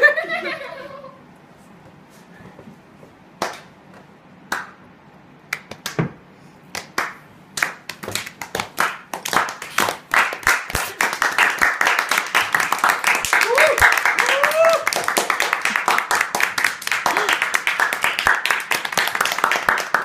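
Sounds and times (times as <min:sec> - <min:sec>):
hands clapping: 0:03.4 - 0:04.8, 0:05.5 - 0:20.0.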